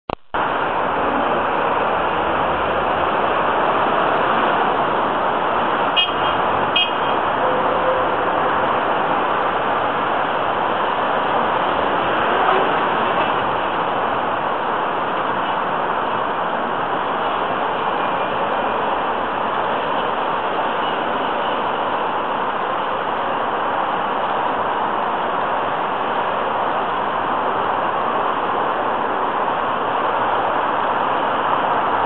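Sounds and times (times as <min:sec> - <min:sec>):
road traffic: 0:00.1 - 0:32.0
car horn beeps: 0:05.9 - 0:08.1.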